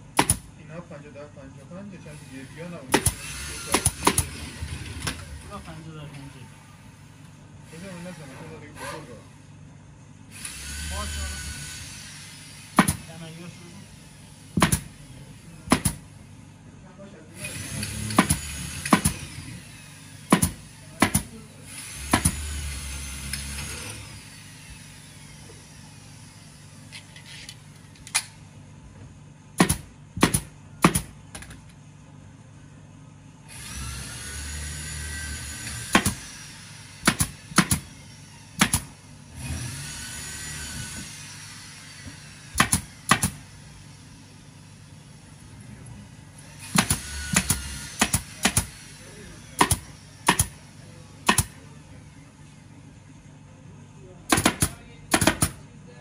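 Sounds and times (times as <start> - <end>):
pneumatic staple gun firing: 0.2 - 0.5, 2.9 - 5.3, 10.3 - 13.2, 14.5 - 14.9, 17.4 - 24.4, 26.9 - 28.4, 33.5 - 43.5, 46.6 - 48.9, 49.6 - 50.6, 51.2 - 51.6, 54.3 - 55.6
compressed air hiss: 10.3 - 15.0.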